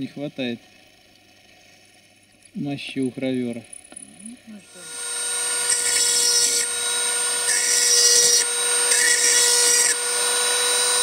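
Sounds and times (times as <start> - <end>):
rotary tool whine: 3.5 - 11.0
drill bit grinding metal: 4.6 - 11.0.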